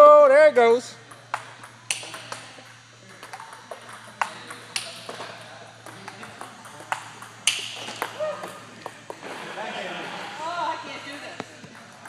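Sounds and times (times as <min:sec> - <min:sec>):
distant ping pong clicks: 0:01.0 - 0:09.2, 0:11.4 - 0:12.0
ping pong ball clicking: 0:01.0 - 0:09.2, 0:11.4 - 0:12.0.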